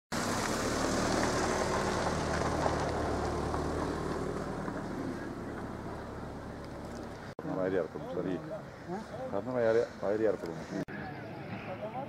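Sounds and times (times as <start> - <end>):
outdoor background noise: 0.1 - 12.0.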